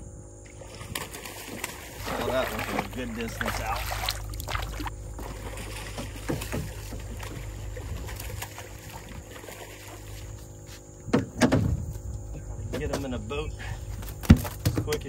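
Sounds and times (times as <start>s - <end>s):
wind: 0.0s - 15.0s
water wash around boat: 0.4s - 10.7s
fish thrashing and splashing: 0.6s - 10.4s.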